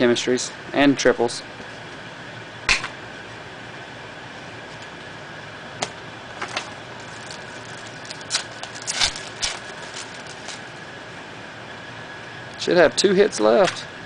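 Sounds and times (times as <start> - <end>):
steady background hum: 0.0 - 14.0
cards snapping and rustling: 6.4 - 10.7.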